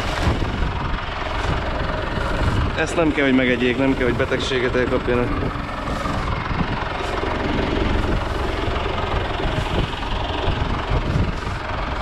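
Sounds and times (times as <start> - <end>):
diesel engine running: 0.0 - 12.0.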